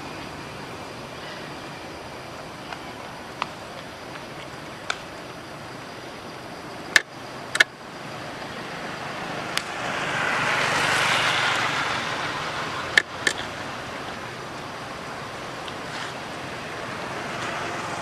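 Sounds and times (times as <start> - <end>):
vehicle passing by: 8.5 - 14.0.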